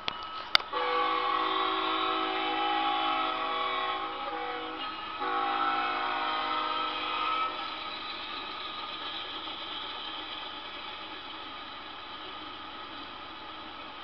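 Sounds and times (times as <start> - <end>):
freight train rolling past: 0.0 - 14.0
locomotive air horn blasts: 0.5 - 7.6.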